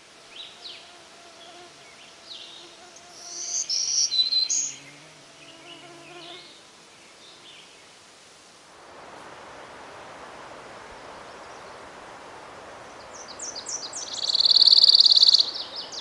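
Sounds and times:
warbler buzzy song: 0:00.0 - 0:08.0, 0:12.8 - 0:16.0
short high bird chirps: 0:13.7 - 0:15.7.

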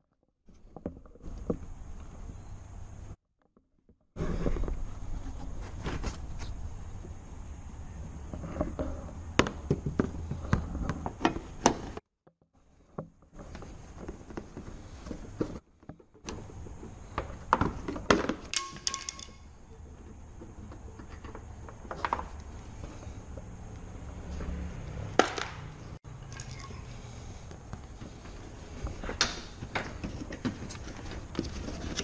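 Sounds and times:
metal ringing clink: 0:18.6 - 0:19.5.

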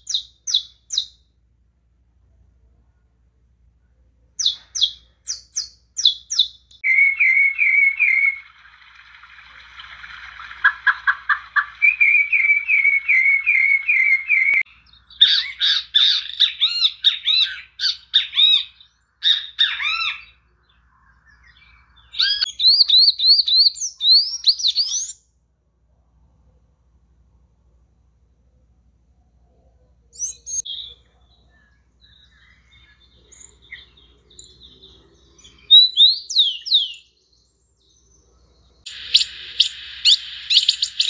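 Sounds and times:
kiskadee calling: 0:04.4 - 0:20.4, 0:21.3 - 0:25.2, 0:38.9 - 0:41.0
finch singing trills: 0:09.8 - 0:25.2, 0:38.8 - 0:41.0.

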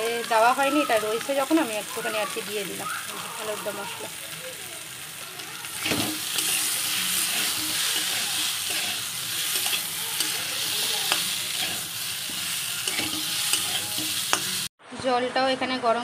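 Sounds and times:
food sizzling in oil: 0:00.0 - 0:14.7
metal spatula scraping pan: 0:05.6 - 0:14.7.

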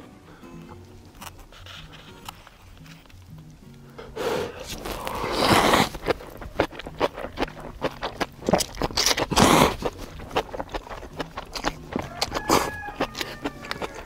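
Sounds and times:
rapid chewing: 0:00.6 - 0:14.0
slurping noodles: 0:04.0 - 0:14.0.

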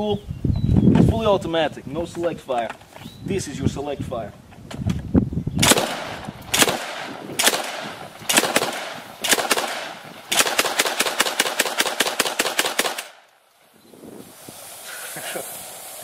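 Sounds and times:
automatic shotgun firing: 0:05.6 - 0:13.3.

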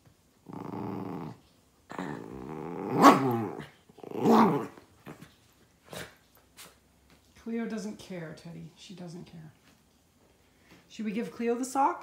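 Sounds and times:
dog growling in play: 0:00.4 - 0:05.3.

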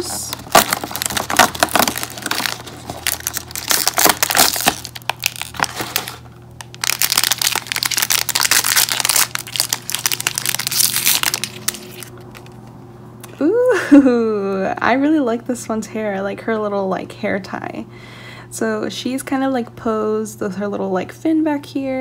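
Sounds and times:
foil wrapper crinkling: 0:00.0 - 0:12.6.

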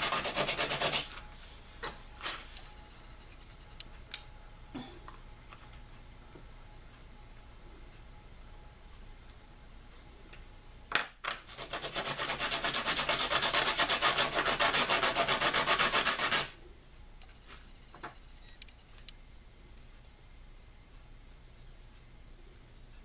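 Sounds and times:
bone scraping on sandpaper: 0:00.0 - 0:01.1, 0:11.5 - 0:16.5.

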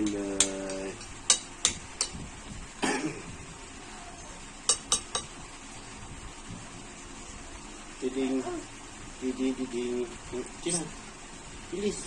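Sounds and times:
person coughing: 0:02.8 - 0:03.2
fork clinking against plate: 0:04.7 - 0:05.3.

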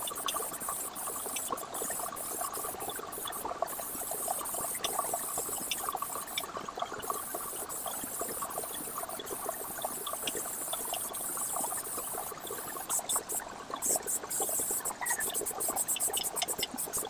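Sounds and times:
airbrush hiss: 0:12.8 - 0:17.0.

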